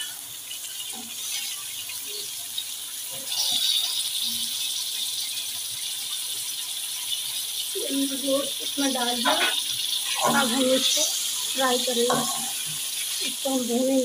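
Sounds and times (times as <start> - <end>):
meat sizzling in hot oil: 0.0 - 14.0.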